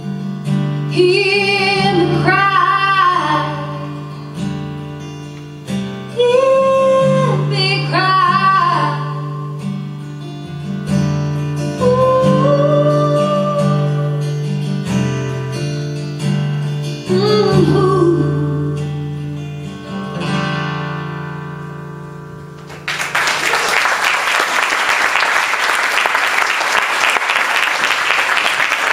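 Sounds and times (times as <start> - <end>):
strummed acoustic guitar: 0.0 - 22.9
woman singing: 0.9 - 4.2, 6.1 - 9.6, 11.8 - 14.4, 17.0 - 19.0
audience applause: 22.7 - 28.9.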